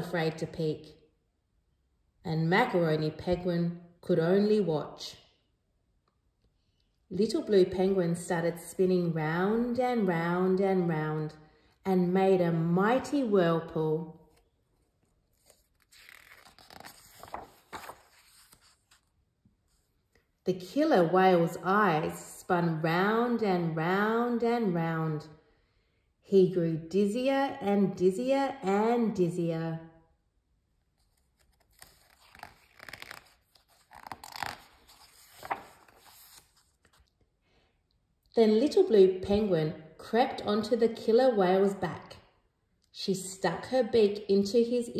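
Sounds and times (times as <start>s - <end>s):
paper page turning: 14.2s - 19.9s, 31.0s - 37.2s.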